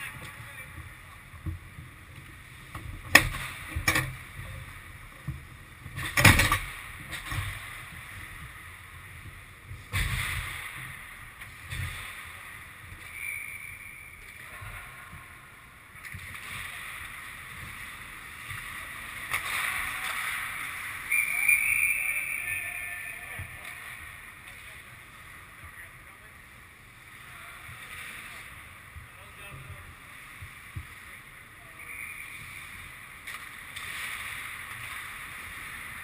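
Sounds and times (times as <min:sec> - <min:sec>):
hockey stick clacks: 0:19.2 - 0:20.4.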